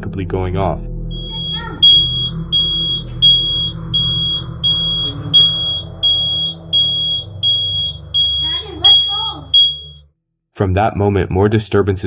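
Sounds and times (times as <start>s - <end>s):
smoke detector beeping: 1.1s - 10.1s.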